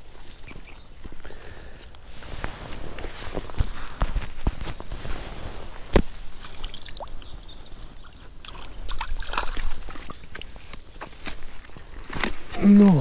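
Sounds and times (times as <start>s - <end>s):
water dripping and splashing: 6.3s - 11.0s.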